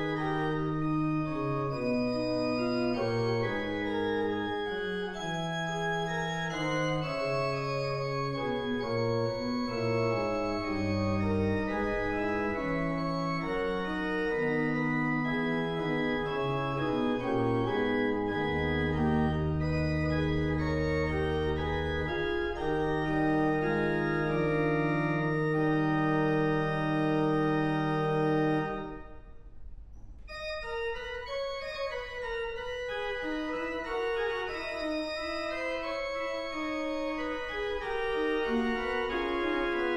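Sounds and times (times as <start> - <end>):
organ chords: 0.0 - 39.9.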